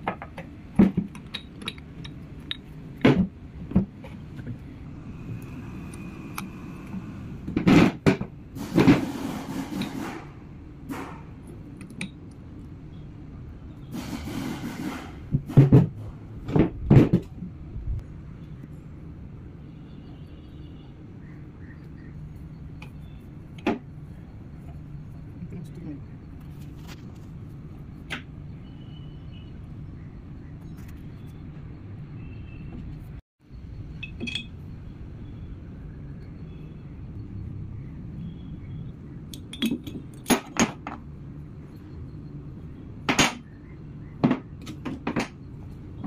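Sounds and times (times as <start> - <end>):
metal parts clinking and knocking: 0.0 - 3.1, 34.0 - 34.6, 39.4 - 41.1.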